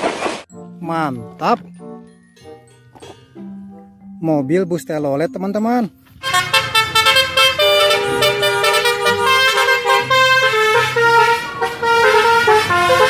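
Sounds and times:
bus horn playing a tune: 6.2 - 13.0.

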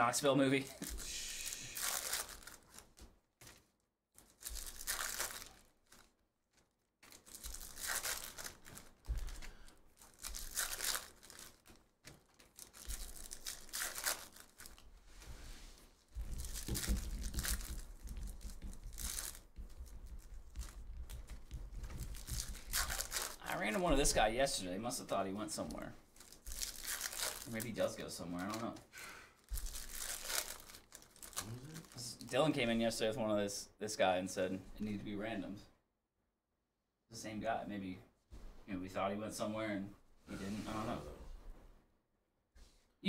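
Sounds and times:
foil wrappers tearing and crinkling: 0.7 - 3.6, 4.2 - 6.1, 7.0 - 14.9, 16.3 - 24.6, 25.6 - 28.7, 29.4 - 32.4.

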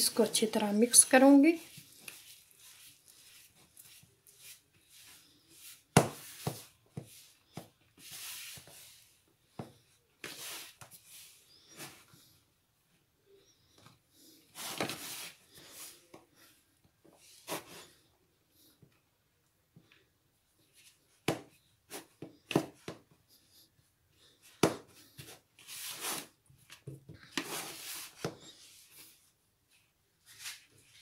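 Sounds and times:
hands kneading dough: 0.0 - 18.0.

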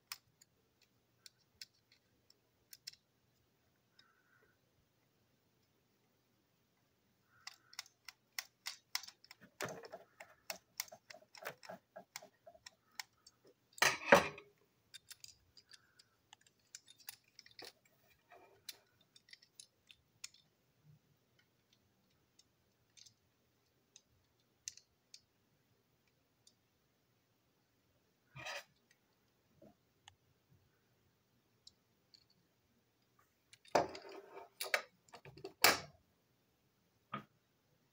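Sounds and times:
plastic parts clicking and rattling: 0.0 - 4.4, 7.2 - 25.4, 31.6 - 36.0.

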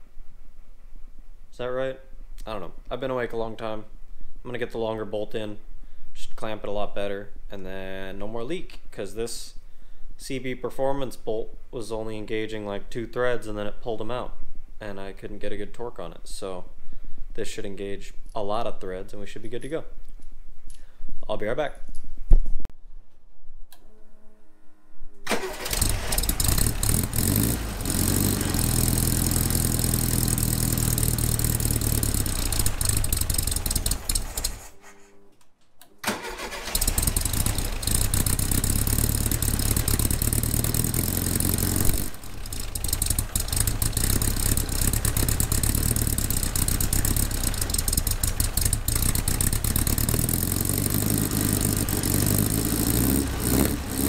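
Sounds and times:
car engine idling: 25.3 - 34.6, 36.3 - 54.0.

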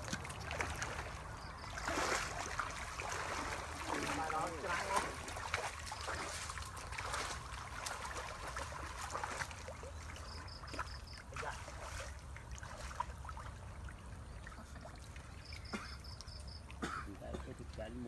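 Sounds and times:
muddy water splashing: 0.0 - 18.0.

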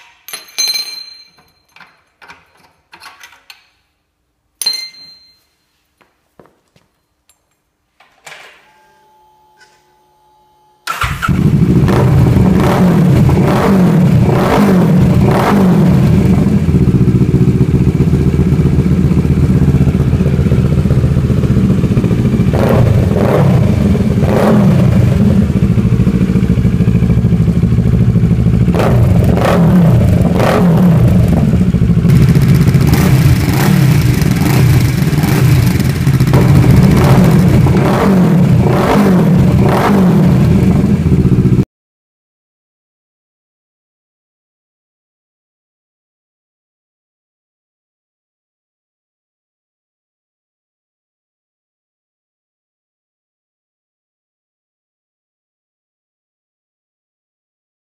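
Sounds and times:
motorcycle engine idling with throttle blips: 16.1 - 24.2, 24.9 - 30.2, 31.0 - 37.7.

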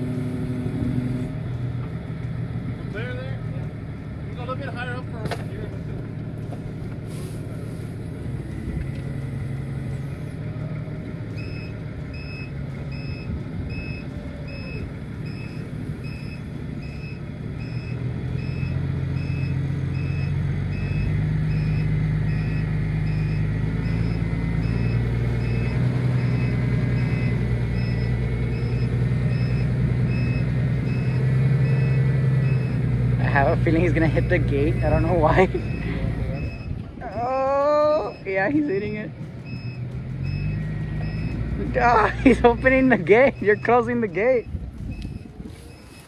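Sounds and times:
engine running: 0.0 - 46.0
reversing alarm beeping: 11.3 - 32.8, 33.6 - 37.3, 38.0 - 46.0.

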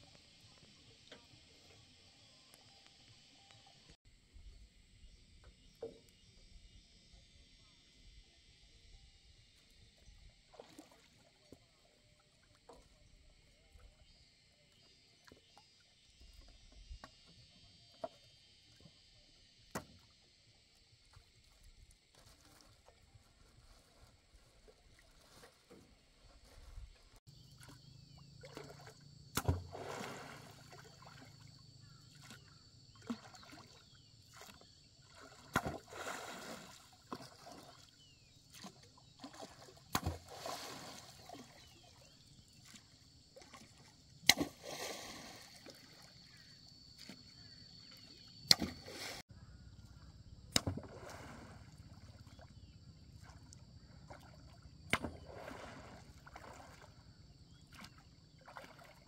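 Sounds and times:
oar splashing water: 10.4 - 18.9, 21.1 - 49.2, 49.9 - 59.0.

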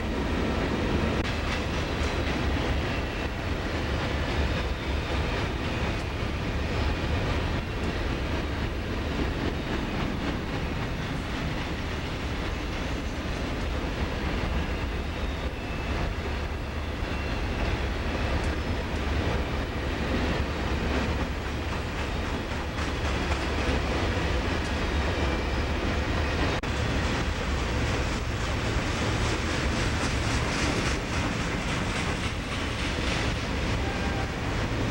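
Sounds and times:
train wheels rumbling on rails: 0.0 - 34.9
wheels clicking over rail joints: 1.2 - 25.4.

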